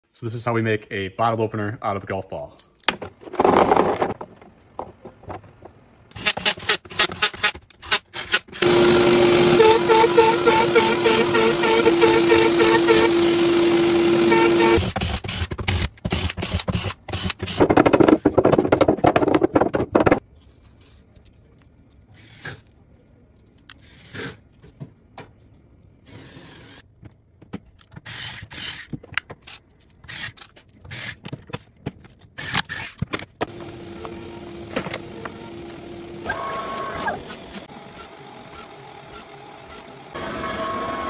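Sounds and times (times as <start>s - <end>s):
router spindle running: 8.6s - 14.8s, 33.5s - 41.0s
steady machine hum: 33.4s - 41.0s.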